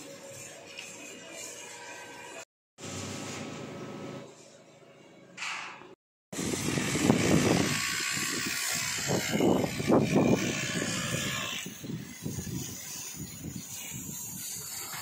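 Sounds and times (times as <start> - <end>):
wind buffeting microphone: 6.4 - 15.0.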